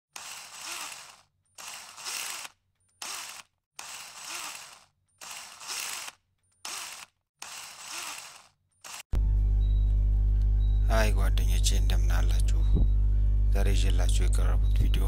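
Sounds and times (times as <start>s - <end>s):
mechanical ratcheting rattle: 0.2s - 9.1s.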